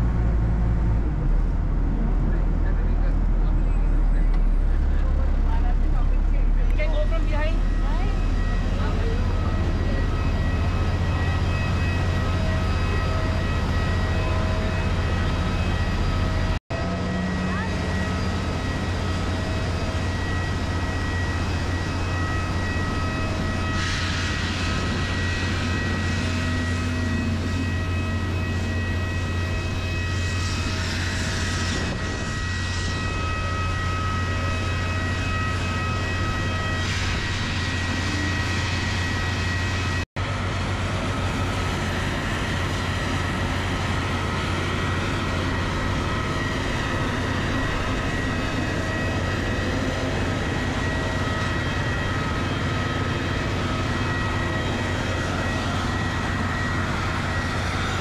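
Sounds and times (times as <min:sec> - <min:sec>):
low engine hum: 0:00.0 - 0:23.6
high whining tones: 0:03.5 - 0:40.0, 0:42.1 - 0:58.0.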